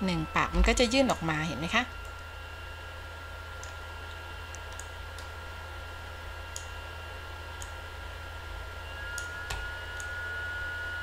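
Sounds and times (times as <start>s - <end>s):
faint high whine: 0.0s - 11.0s
low electrical hum: 0.0s - 11.0s
computer mouse clicks: 3.6s - 5.3s, 6.5s - 6.8s, 7.6s - 7.8s, 9.2s - 10.2s.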